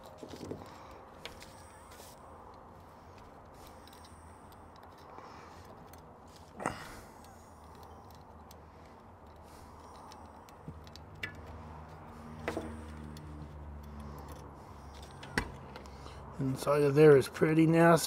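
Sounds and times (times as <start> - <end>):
metallic clicks and taps: 7.2 - 16.0.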